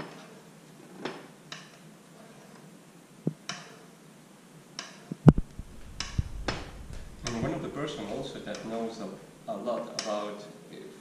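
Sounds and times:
sharp knock and thud: 0:05.2 - 0:07.6.

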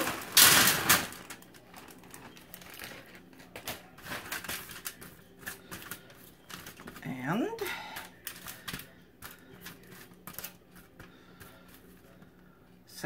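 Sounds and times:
foil crinkling and clicking: 0:00.0 - 0:12.3.

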